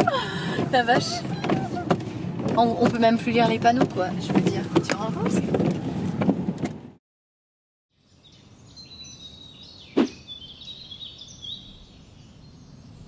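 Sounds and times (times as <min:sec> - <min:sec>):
small birds chirping: 0:07.9 - 0:13.0
sharp swish: 0:10.0 - 0:10.2.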